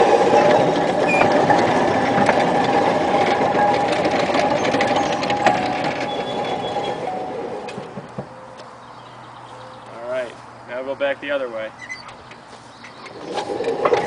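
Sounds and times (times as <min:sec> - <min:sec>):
rattles and knocks: 0:00.0 - 0:08.8, 0:11.8 - 0:14.0.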